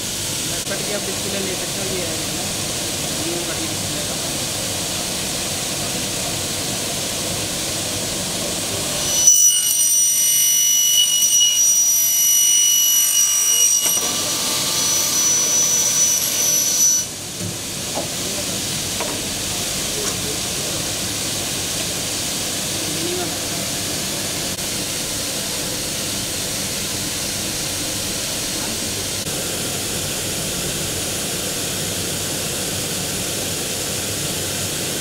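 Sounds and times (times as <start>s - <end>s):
saw cutting plastic whine: 8.8s - 17.2s
steady hiss: 17.1s - 35.0s.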